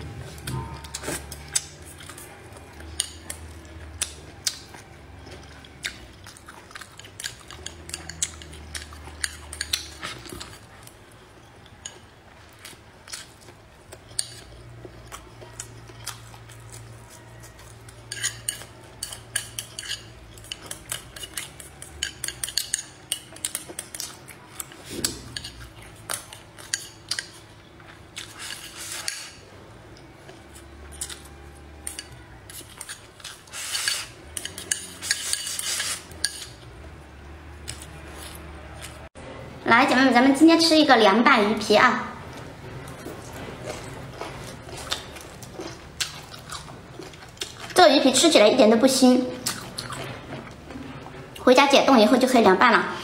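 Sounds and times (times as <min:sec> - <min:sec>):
utensils clicking against dishes: 0:06.7 - 0:10.6, 0:17.6 - 0:27.5, 0:28.2 - 0:29.4, 0:30.5 - 0:36.7
biting and chewing: 0:42.3 - 0:47.8.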